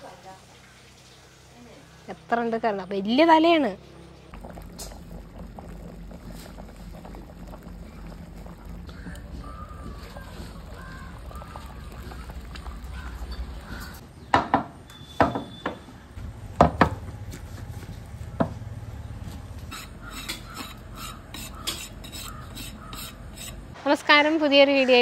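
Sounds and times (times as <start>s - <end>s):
utensils stirring in metal pot: 4.3s - 14.0s, 19.6s - 23.7s.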